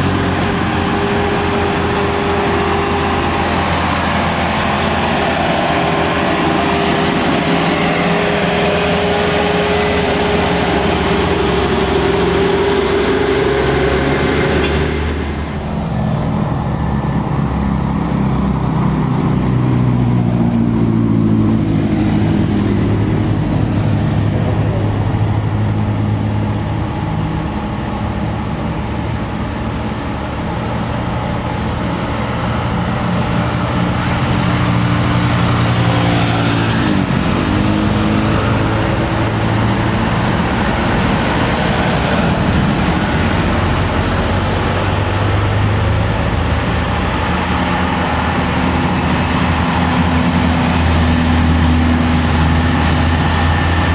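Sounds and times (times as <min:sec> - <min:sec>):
diesel truck engine under load: 0:00.0 - 0:53.9
passing road traffic: 0:00.0 - 0:53.9.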